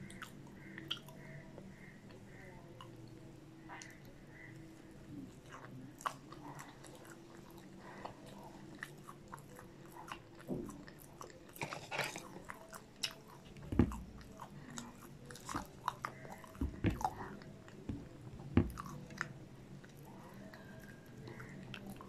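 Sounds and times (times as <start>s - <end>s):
crunchy chewing: 0.0s - 22.0s
thumps: 13.6s - 14.2s, 16.6s - 17.3s, 17.9s - 19.0s.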